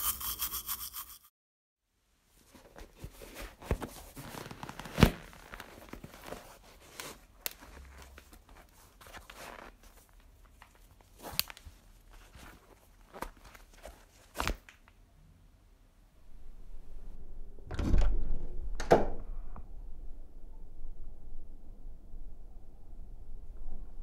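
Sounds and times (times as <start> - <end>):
shoelaces rustling: 2.5 - 14.7.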